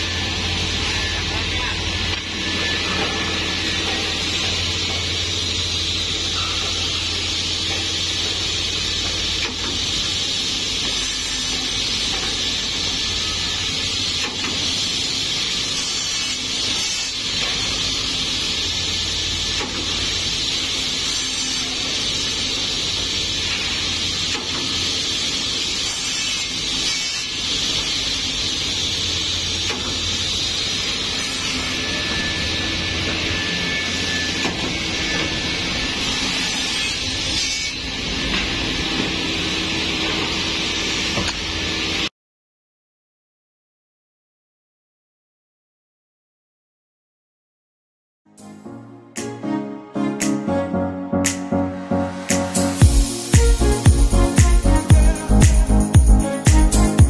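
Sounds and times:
circular saw motor humming: 52.5s - 57.0s.

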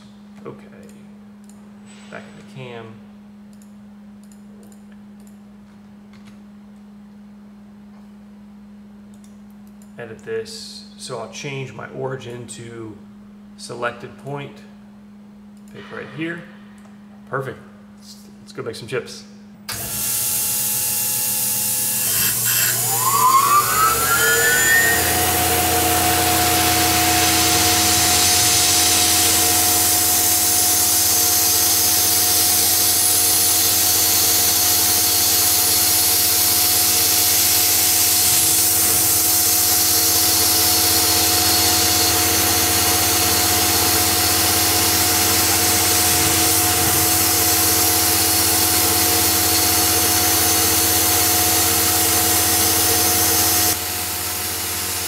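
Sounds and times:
mill spindle whining: 19.7s - 55.0s
end mill cutting aluminium: 20.6s - 55.0s.

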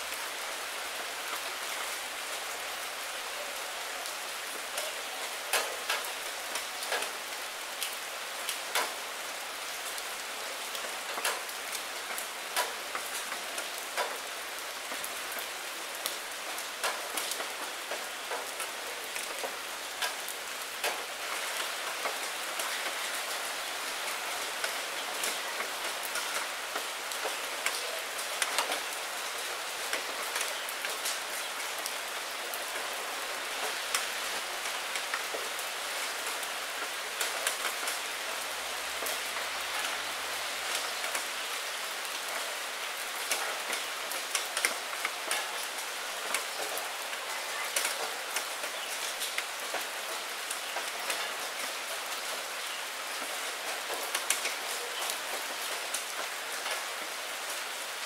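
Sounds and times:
rain on a glass window: 0.0s - 58.0s
sharp raindrop ticks: 5.5s - 7.2s, 7.8s - 9.0s, 10.7s - 23.0s, 24.6s - 29.0s, 33.6s - 38.0s, 40.7s - 41.3s, 43.1s - 46.8s, 47.5s - 56.8s.

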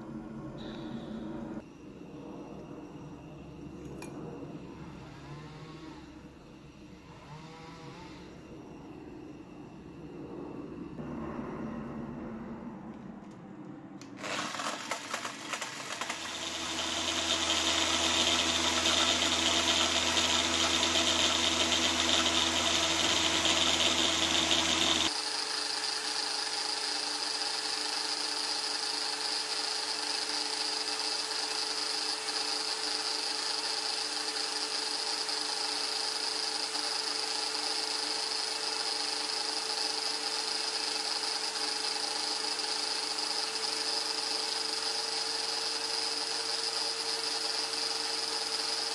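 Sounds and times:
electric drill motor whine: 0.6s - 11.2s, 14.1s - 48.9s.

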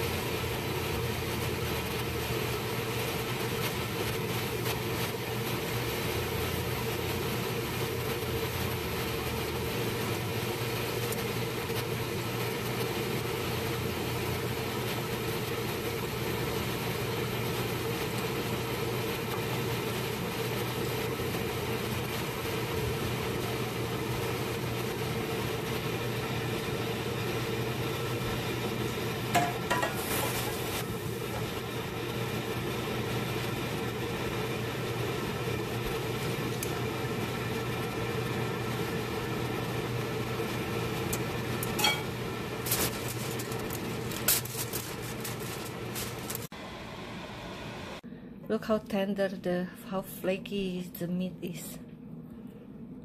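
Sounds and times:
appliance fan hum: 0.0s - 53.0s
aluminium foil crinkling: 41.6s - 46.5s.

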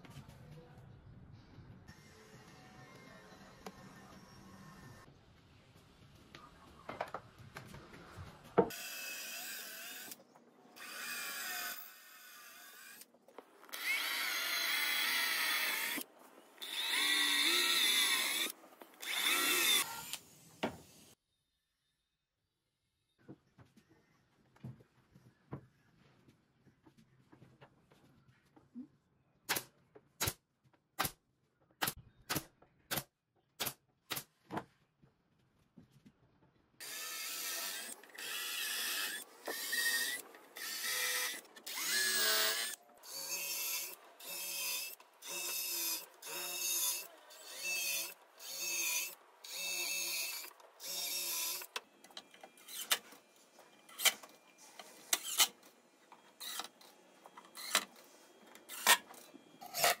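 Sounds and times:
cordless drill boring into wood: 13.7s - 16.0s, 16.6s - 20.2s, 36.8s - 51.7s
drill driving screws: 13.7s - 16.0s, 16.6s - 20.2s, 36.8s - 51.8s, 57.6s - 57.9s.

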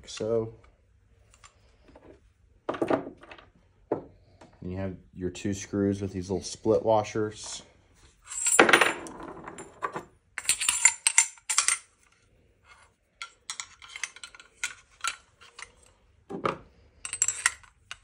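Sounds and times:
small metal parts clicking: 10.4s - 12.2s, 13.2s - 16.0s, 17.0s - 18.0s.

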